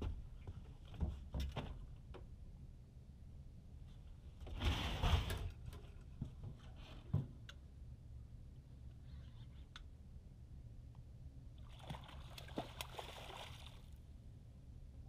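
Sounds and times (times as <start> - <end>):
water splashing: 11.6 - 14.0.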